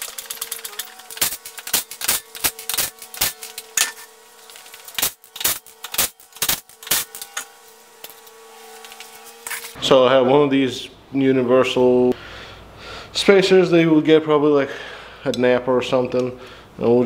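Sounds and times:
floor jack clicking and clanking: 0.0 - 4.8.

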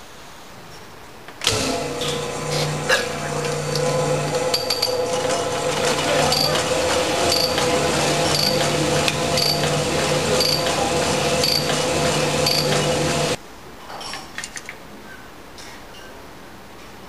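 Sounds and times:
cylinder hone running: 1.5 - 13.4.

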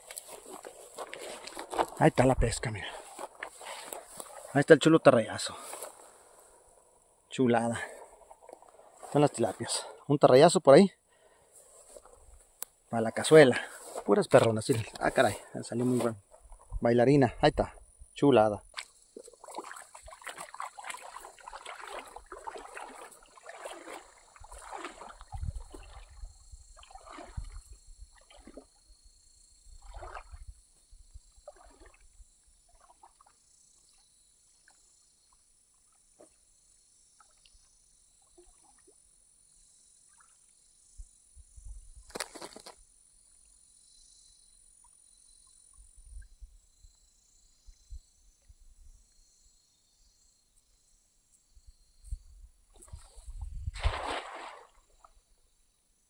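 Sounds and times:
water sloshing and splashing: 18.7 - 28.8, 29.7 - 30.6, 31.4 - 33.4, 52.7 - 55.1.

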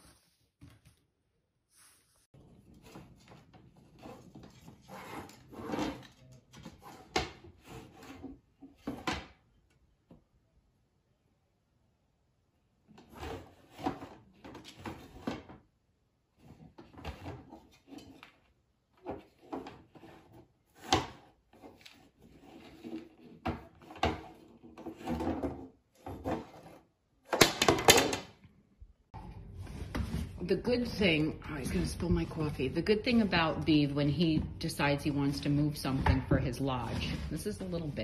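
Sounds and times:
stick scraping on wooden floor: 1.8 - 9.2, 13.0 - 15.6, 19.0 - 27.4.

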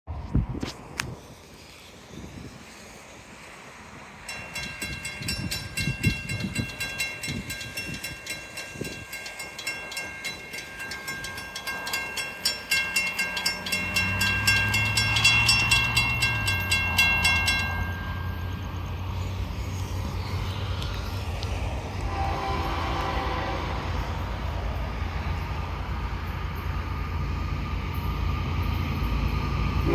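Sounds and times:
crossing warning bell ringing: 4.1 - 19.8.

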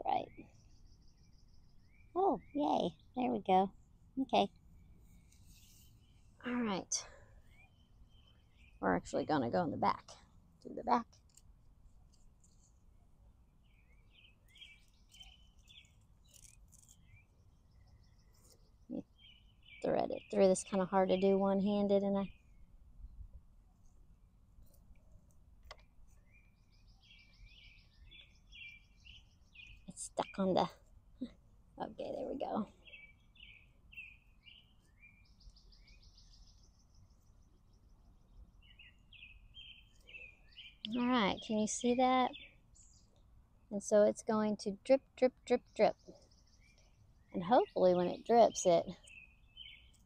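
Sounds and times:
birds chirping: 0.0 - 11.0, 13.5 - 22.7, 25.7 - 50.0
bird trill: 45.9 - 50.0.

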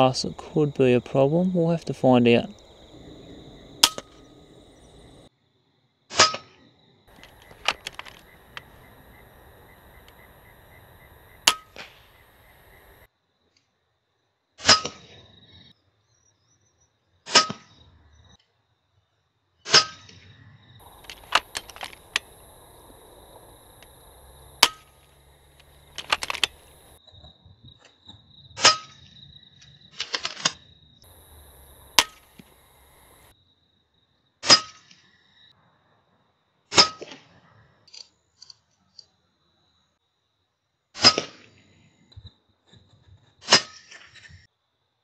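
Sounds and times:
air rifle firing: 3.8 - 4.2, 20.8 - 27.0, 31.3 - 33.3
faint clicks: 7.1 - 13.1, 20.8 - 27.0, 31.1 - 33.3.

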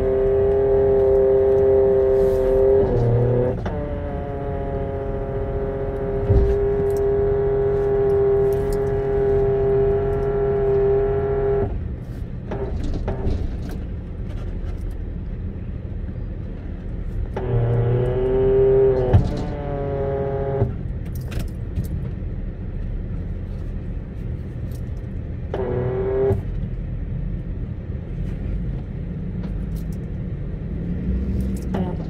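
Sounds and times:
whine with many overtones: 25.5 - 26.8.

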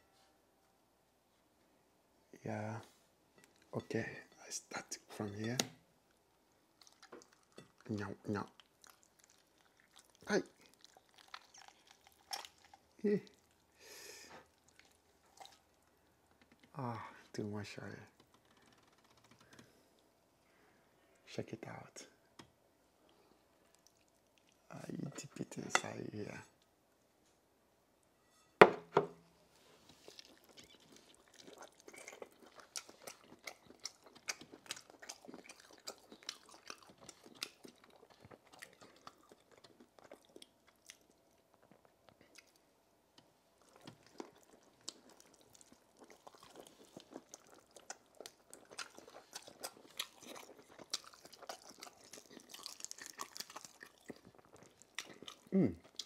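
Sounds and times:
chewing with wet crunches: 6.8 - 13.7, 14.4 - 15.9, 23.7 - 24.7, 29.9 - 42.6, 43.6 - 56.0.

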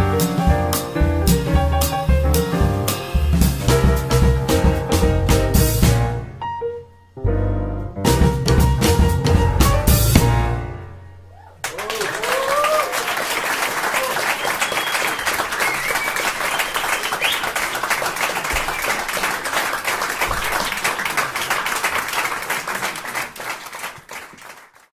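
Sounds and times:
people cheering: 11.3 - 24.6
audience applause: 11.6 - 24.9.

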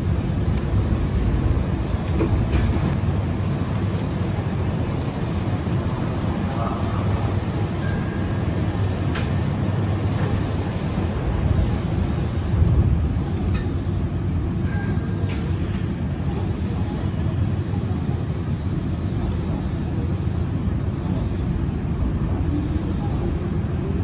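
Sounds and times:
low rumble of a train: 0.0 - 24.0
brief high beep: 7.8 - 8.4, 14.6 - 15.5.

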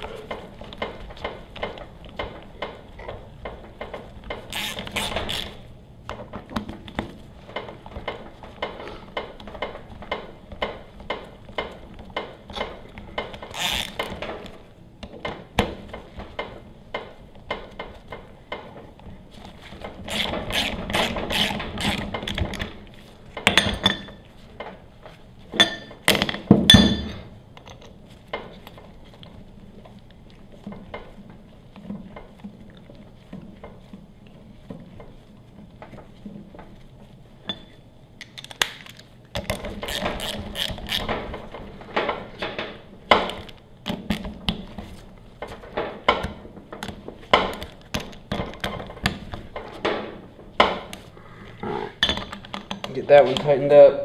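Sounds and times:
metal clanks and clinks: 23.4 - 24.2, 25.6 - 28.0, 37.5 - 37.8.

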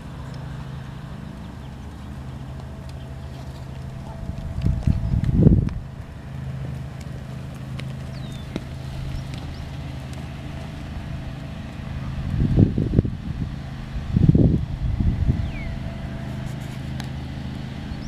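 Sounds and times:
steady low hum: 0.0 - 18.0
wind buffeting microphone: 0.0 - 18.0
horse hoofbeats in sand: 1.4 - 12.7.

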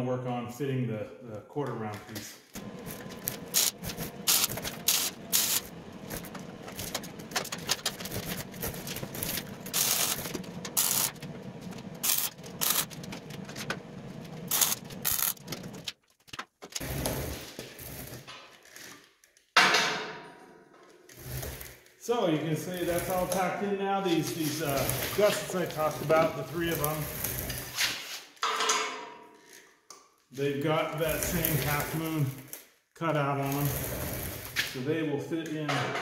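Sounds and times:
arc welder crackling: 2.5 - 19.0, 21.1 - 28.4, 30.4 - 32.7, 33.4 - 34.8.

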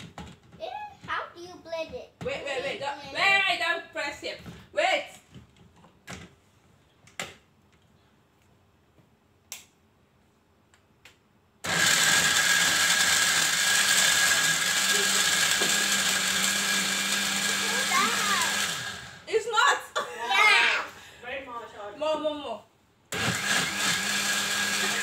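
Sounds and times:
blender motor whine: 11.6 - 19.3, 23.1 - 25.0.

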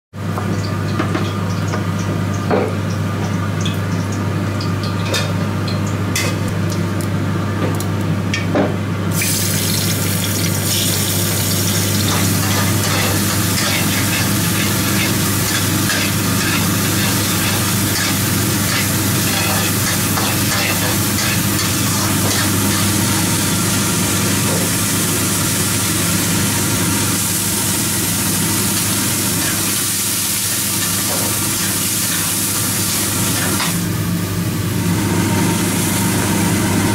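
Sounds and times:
vegetables sizzling in a wok: 9.1 - 36.9.

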